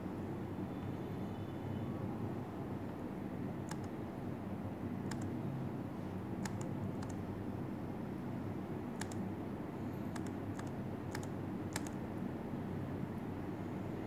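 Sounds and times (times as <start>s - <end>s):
laptop keys clicking: 3.6s - 4.0s, 5.1s - 5.4s, 6.4s - 7.2s, 9.0s - 9.2s, 10.1s - 12.0s.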